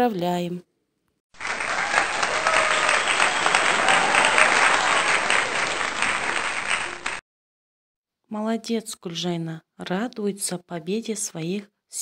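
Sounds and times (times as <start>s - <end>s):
crowd applauding: 1.4s - 7.2s.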